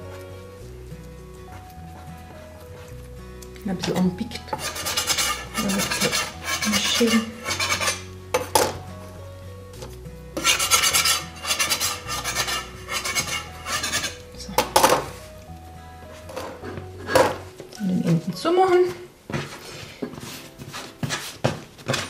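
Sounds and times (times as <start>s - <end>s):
metal spatula scraping wooden board: 4.4s - 8.8s, 10.4s - 15.3s, 20.2s - 22.0s.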